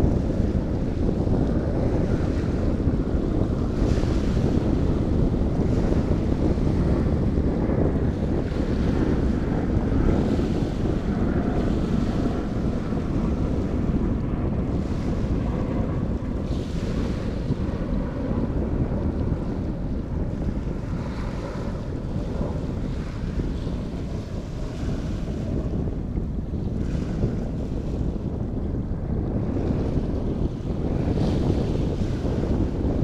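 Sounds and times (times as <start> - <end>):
wind buffeting microphone: 0.0 - 33.0
waves rushing: 8.0 - 25.5.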